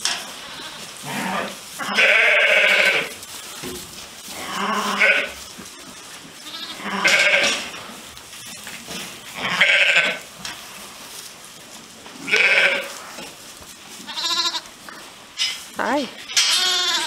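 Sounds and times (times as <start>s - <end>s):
sheep bleating: 0.4s - 3.1s, 4.4s - 7.6s, 9.4s - 10.2s, 12.2s - 12.9s, 14.1s - 14.7s, 16.4s - 17.0s.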